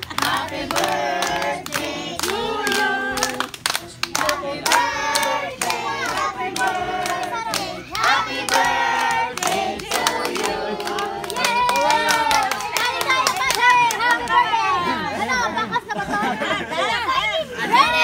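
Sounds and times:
group singing: 0.0 - 13.2
hands clapping: 0.0 - 14.4.

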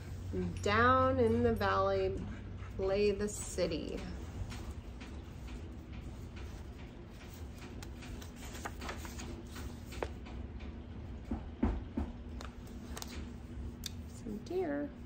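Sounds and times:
steady low hum: 0.0 - 15.0
book page rustling: 7.2 - 10.2, 12.6 - 13.3.

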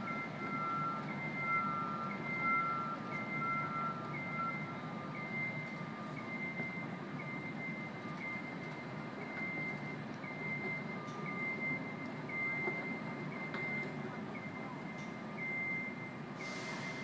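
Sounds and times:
fainter lower alarm beep: 0.0 - 16.2
alarm beeping: 0.0 - 17.0
low city traffic hum: 0.0 - 17.0.

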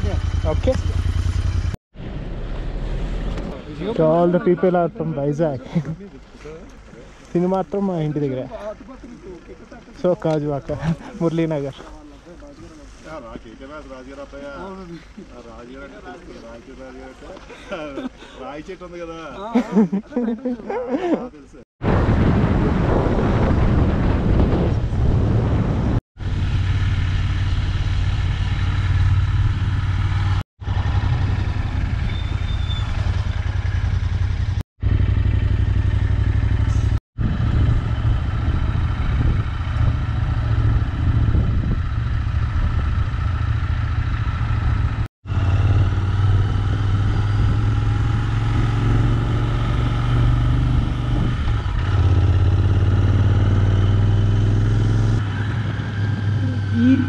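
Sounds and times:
motorcycle engine running: 0.0 - 1.8, 26.2 - 57.0
wind rumble on microphone: 21.8 - 26.7, 36.8 - 43.5, 44.2 - 52.6.

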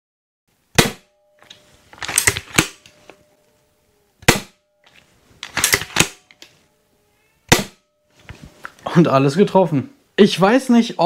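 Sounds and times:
crossbow shot crack: 0.8 - 1.1, 4.2 - 4.6, 5.4 - 6.2, 7.5 - 7.8
faint metallic ringing: 1.0 - 2.0
crossbow cocking clacks: 5.4 - 6.6.

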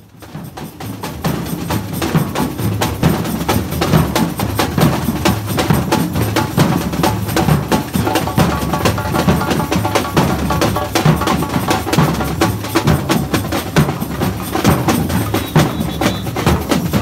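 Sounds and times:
samba percussion band playing: 0.0 - 17.0
bass drums: 1.1 - 17.0.

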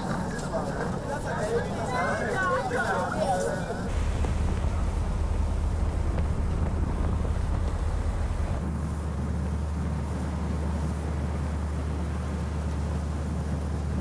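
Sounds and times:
boat engine droning: 0.0 - 14.0
wind on microphone: 3.8 - 14.0.

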